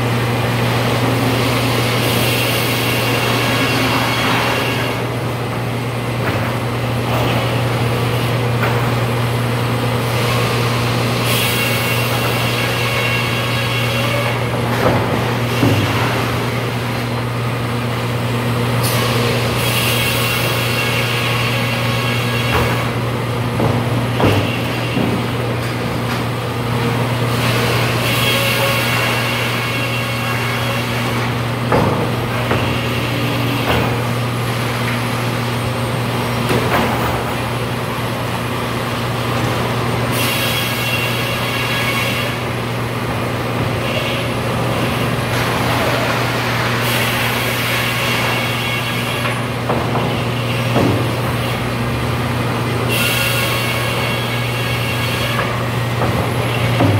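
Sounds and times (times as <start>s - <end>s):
sawmill motor humming: 0.0s - 36.6s
high-pitched saw cutting noise: 1.4s - 5.1s, 52.9s - 55.6s.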